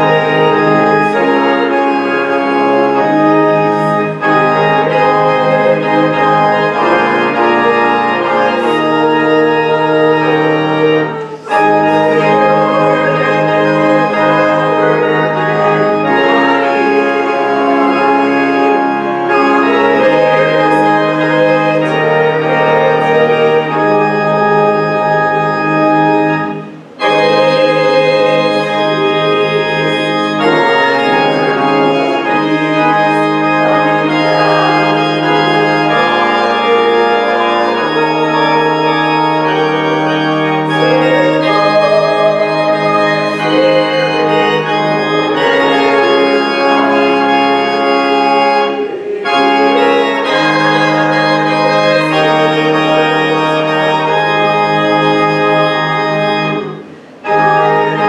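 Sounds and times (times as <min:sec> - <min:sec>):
church organ playing chords: 0:00.0 - 0:58.0.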